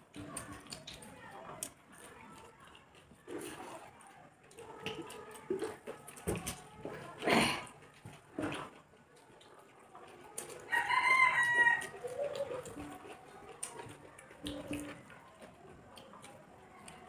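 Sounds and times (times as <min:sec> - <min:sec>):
rooster crowing: 0:10.7 - 0:12.0.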